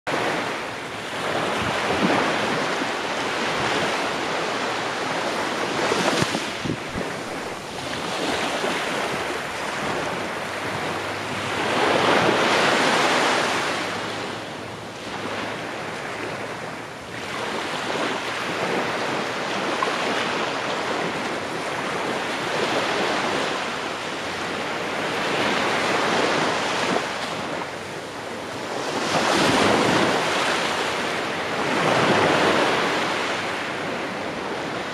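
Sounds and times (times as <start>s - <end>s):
waves washing up a beach: 0.1s - 34.9s
wind on microphone: 0.1s - 34.9s.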